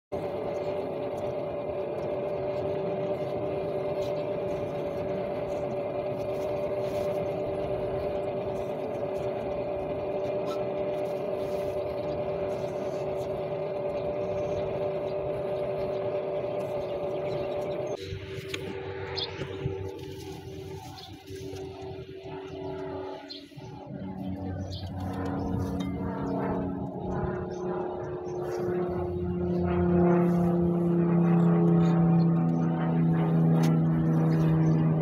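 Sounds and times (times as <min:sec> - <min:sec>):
potter's wheel motor humming: 0:00.1 - 0:35.0.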